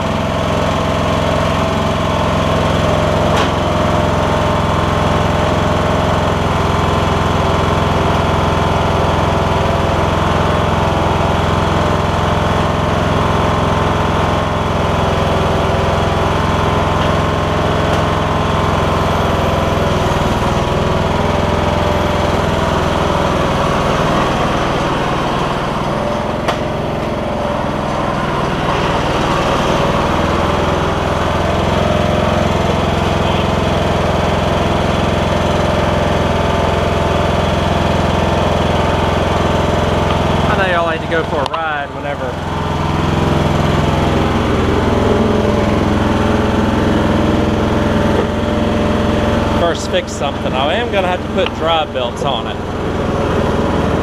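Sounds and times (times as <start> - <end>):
lawn tractor engine running: 0.0 - 54.0.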